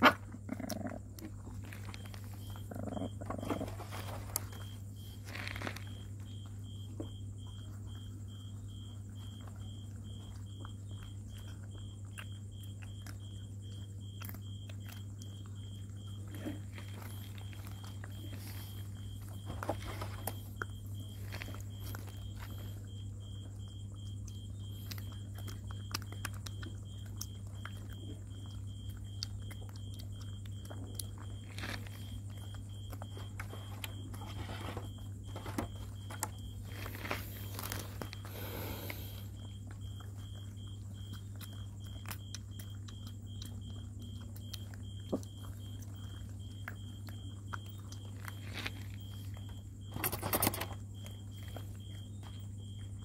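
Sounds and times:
steady low hum: 0.0s - 53.0s
crinkly rustling of tarp: 3.3s - 6.0s, 36.5s - 39.0s, 48.2s - 49.3s
puppies chewing plastic tarp: 29.8s - 38.7s.

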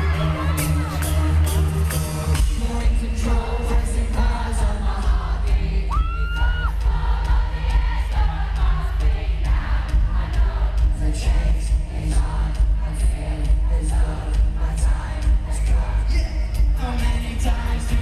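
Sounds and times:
man singing: 0.0s - 6.7s, 10.9s - 18.0s
live pop song over pa: 0.0s - 18.0s
crowd screaming: 5.9s - 7.1s.

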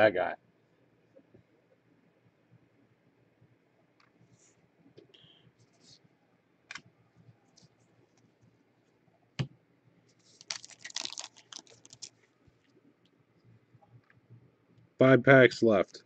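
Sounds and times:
foil wrapper crinkling: 10.2s - 12.2s.

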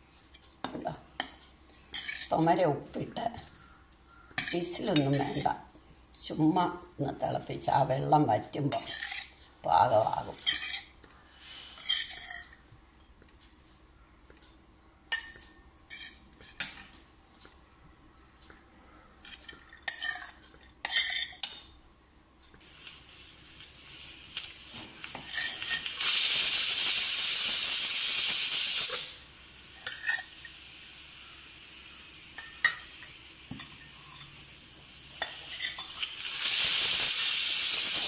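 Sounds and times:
steam hissing: 22.6s - 38.0s
metal spatula scraping steel pan: 25.1s - 25.9s
pressure cooker whistle: 25.8s - 29.2s, 36.2s - 38.0s.

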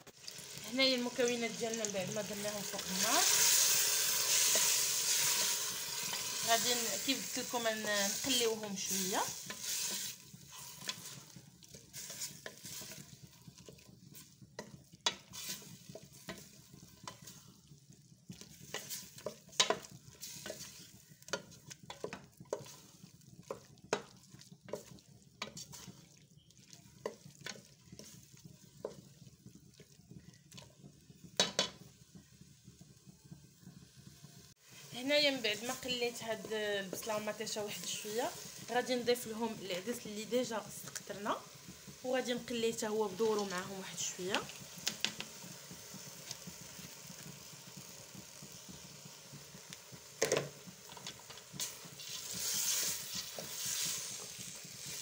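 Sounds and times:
faint frying sizzle: 0.0s - 55.0s
wooden spoon scraping a pot: 0.8s - 31.9s, 34.8s - 40.1s, 50.8s - 55.0s.

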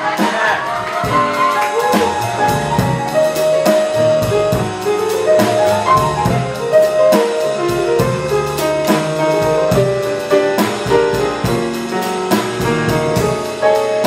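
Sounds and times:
cymbal and drum strokes: 0.0s - 14.0s
live jazz band playing: 0.0s - 14.0s.

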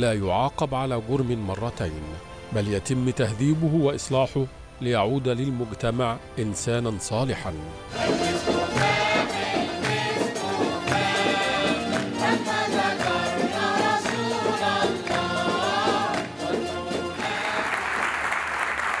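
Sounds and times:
women's choir singing with music: 7.9s - 18.3s
applause: 16.1s - 16.3s, 17.2s - 19.0s.

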